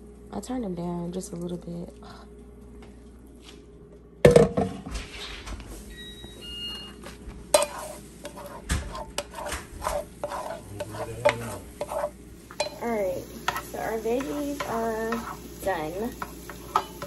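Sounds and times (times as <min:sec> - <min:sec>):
utensil scraping frying pan: 0:07.5 - 0:17.0.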